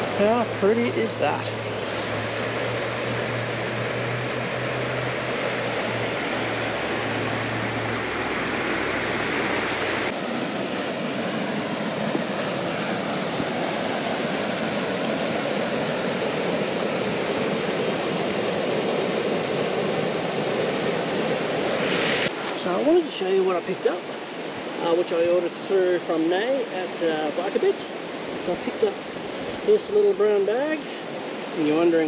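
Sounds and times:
low hum: 0.0s - 22.4s
river rushing over rapids: 0.0s - 32.0s.

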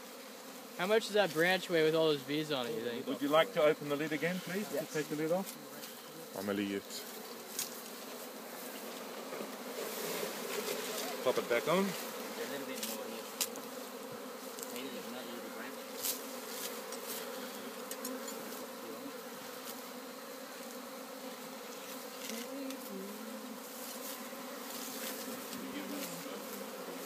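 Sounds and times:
bees buzzing: 0.0s - 27.0s.

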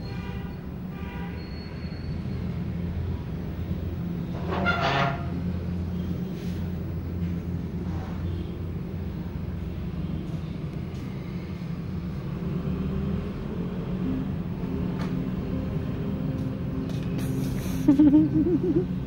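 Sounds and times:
low mechanical rumble with hum: 13.2s - 19.0s.

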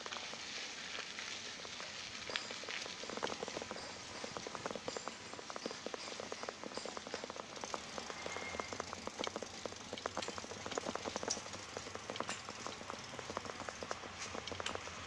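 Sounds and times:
raindrops falling: 0.0s - 15.0s.

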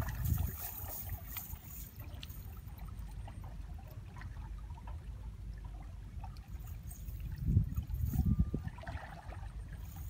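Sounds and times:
low wind rumble: 0.0s - 2.6s, 4.3s - 10.0s
water trickling: 0.0s - 10.0s.

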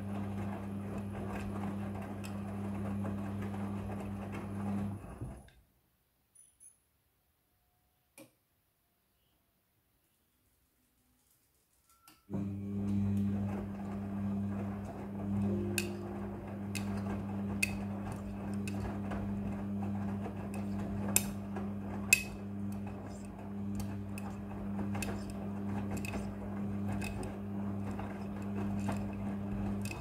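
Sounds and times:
washing machine drum humming: 0.0s - 5.5s, 12.3s - 30.0s.

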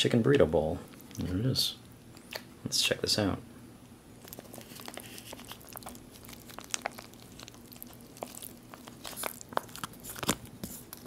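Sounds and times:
plastic pouch crinkling: 4.2s - 11.0s.

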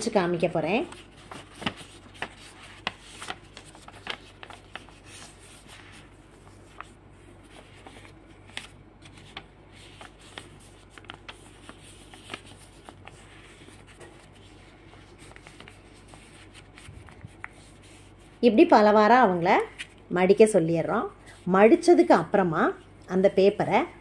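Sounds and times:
paper rustling and crackling: 0.4s - 18.4s.

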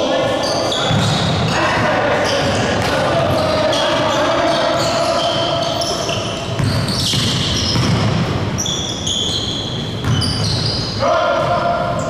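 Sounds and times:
players' voices: 0.0s - 7.1s, 11.0s - 12.0s
sneakers squeaking: 0.0s - 12.0s
basketball bouncing: 0.9s - 1.5s, 6.1s - 8.5s, 10.0s - 10.6s.

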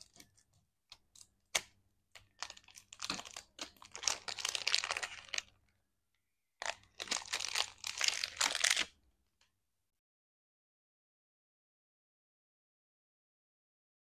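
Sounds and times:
plastic wrapper crinkling: 1.1s - 5.6s, 6.6s - 9.0s.

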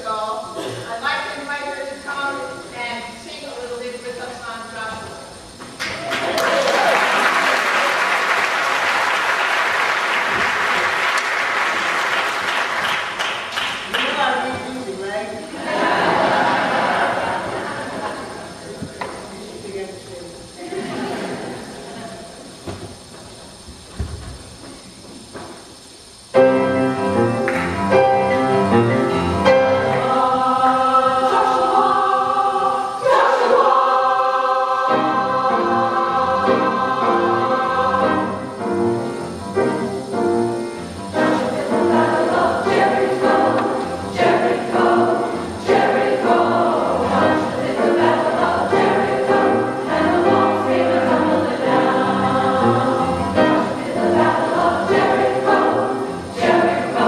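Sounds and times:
women's chorus singing gospel: 15.5s - 18.7s, 29.4s - 39.1s, 41.1s - 57.0s
piano accompaniment: 26.3s - 57.0s.

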